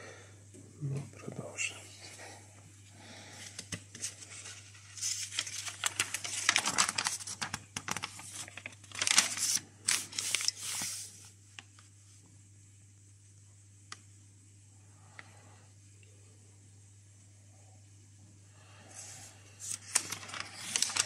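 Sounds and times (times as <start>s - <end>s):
paper pages rustling: 3.4s - 11.9s, 19.0s - 21.0s.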